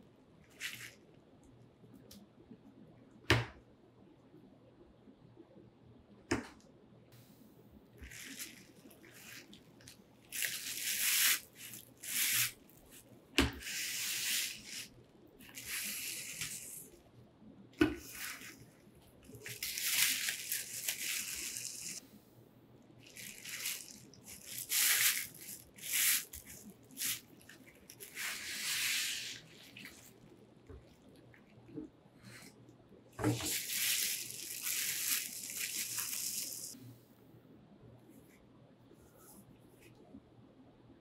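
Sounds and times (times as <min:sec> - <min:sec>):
bubble wrap rustling: 0:00.5 - 0:01.0, 0:08.0 - 0:17.1, 0:17.8 - 0:22.0, 0:23.0 - 0:31.4, 0:33.2 - 0:36.8.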